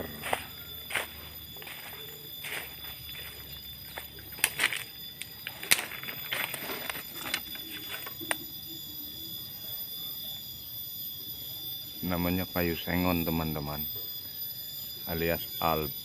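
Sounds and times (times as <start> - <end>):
footsteps on dry leaves and twigs: 0.0 - 8.5
high-pitched ringing tones: 0.0 - 16.0.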